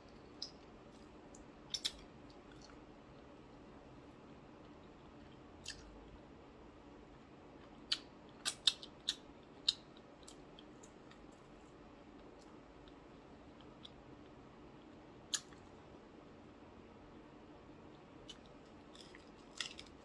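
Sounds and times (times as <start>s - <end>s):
chewing crispy fried food: 7.6s - 15.7s, 17.9s - 20.0s.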